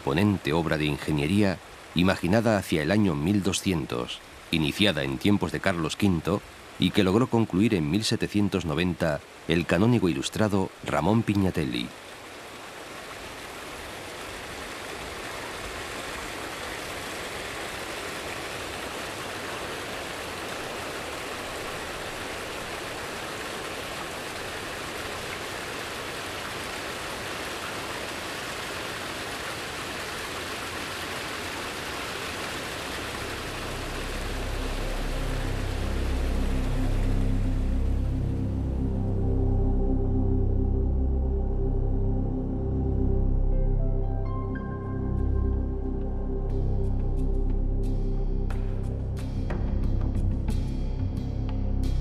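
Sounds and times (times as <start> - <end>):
flowing water rushing: 0.0 - 40.2
low music: 33.0 - 52.0.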